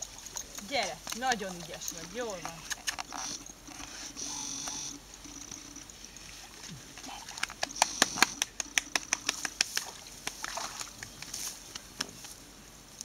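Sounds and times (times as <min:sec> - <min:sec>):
grass rustling: 0:00.0 - 0:13.0
dog splashing in water: 0:06.4 - 0:11.4.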